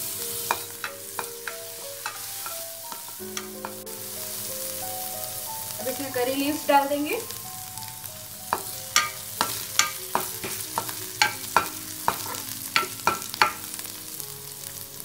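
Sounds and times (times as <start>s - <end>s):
spices sizzling in hot oil: 0.0s - 15.0s
spatula clicking on pan: 0.4s - 3.8s, 8.5s - 13.7s.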